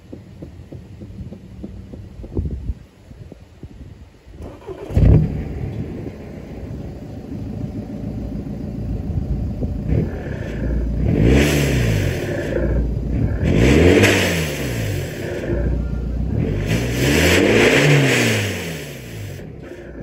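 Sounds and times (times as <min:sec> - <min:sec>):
diesel engine exhaust running: 0:00.0 - 0:20.0
engine throttle blip: 0:04.4 - 0:20.0.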